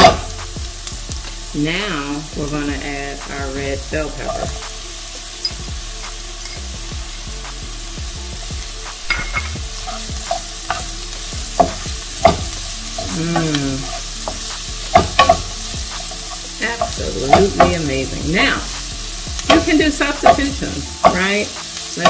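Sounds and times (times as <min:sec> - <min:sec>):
vegetables sizzling in a skillet: 0:00.0 - 0:22.0
wooden spoon scraping a pan: 0:08.9 - 0:22.0.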